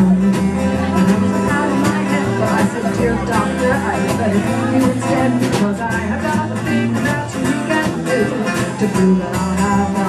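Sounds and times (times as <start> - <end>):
drum kit beat: 0.0 - 10.0
electric guitars: 0.0 - 10.0.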